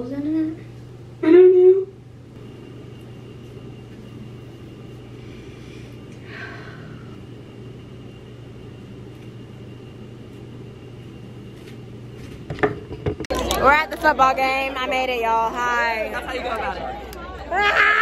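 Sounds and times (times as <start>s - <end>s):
faint high whine: 0.0s - 12.6s
low mechanical hum: 0.0s - 18.0s.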